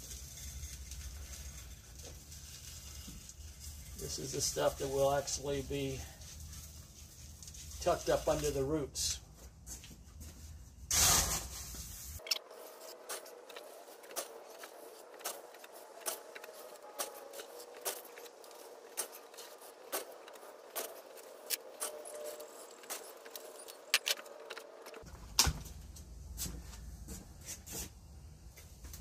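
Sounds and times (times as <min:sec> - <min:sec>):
gravelly soil clicking and rattling: 0:00.0 - 0:09.2, 0:12.2 - 0:25.2.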